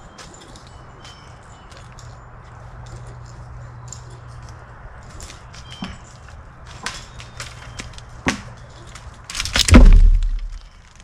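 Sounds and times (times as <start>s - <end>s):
dry wood cracking: 4.5s - 11.0s
loud heavy thud: 9.6s - 10.6s.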